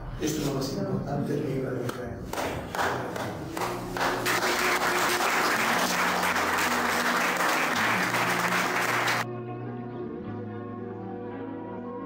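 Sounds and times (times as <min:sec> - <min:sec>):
audience applauding: 0:02.4 - 0:09.3
music playing: 0:02.5 - 0:12.0.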